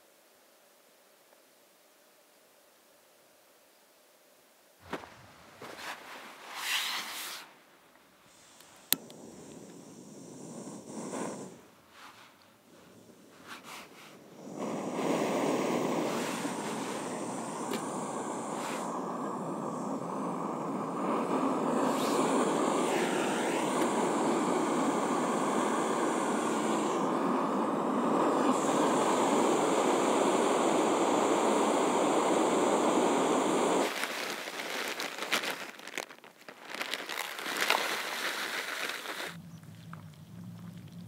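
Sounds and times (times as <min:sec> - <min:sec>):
gas stove burning: 0:08.3 - 0:11.8, 0:12.6 - 0:34.2
food pouch rustling: 0:33.9 - 0:39.4.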